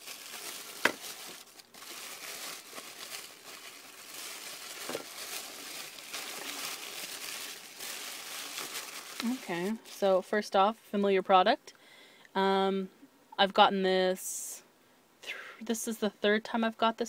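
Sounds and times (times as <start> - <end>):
packing paper rustling: 0.0 - 10.0.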